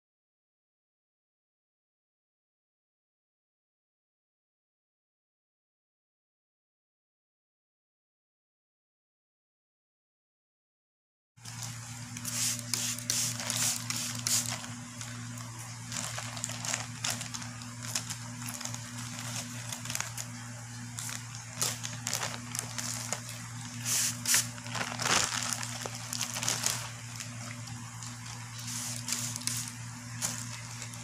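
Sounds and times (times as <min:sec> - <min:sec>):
plastic bag crinkling: 0:11.4 - 0:31.0
steady low hum: 0:11.4 - 0:31.0.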